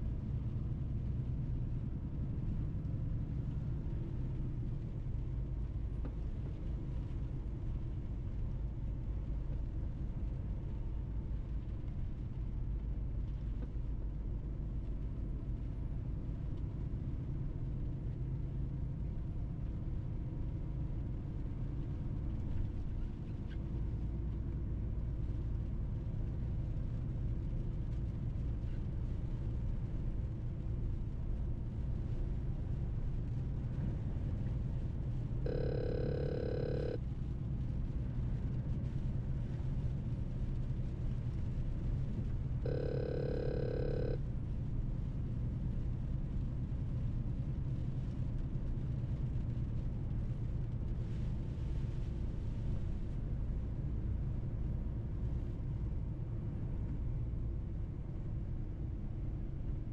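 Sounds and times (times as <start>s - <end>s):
electronic beeps: 35.5s - 37.0s, 42.7s - 44.2s
truck driving drone: 35.5s - 37.0s, 42.7s - 44.2s.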